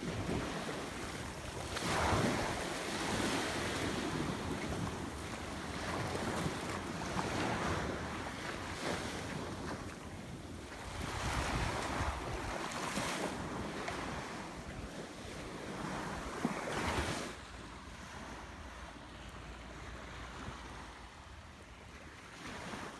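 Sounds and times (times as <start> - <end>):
wind buffeting microphone: 0.0 - 17.2
small waves washing onto shore: 0.0 - 22.9.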